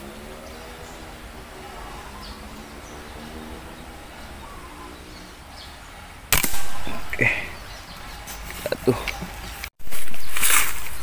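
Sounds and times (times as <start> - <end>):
air rifle shot: 6.3 - 7.5.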